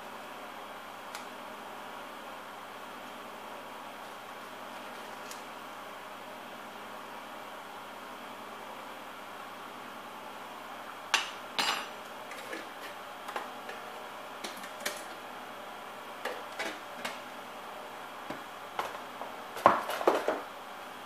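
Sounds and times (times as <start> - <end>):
metal utensils clinking: 11.6 - 13.0.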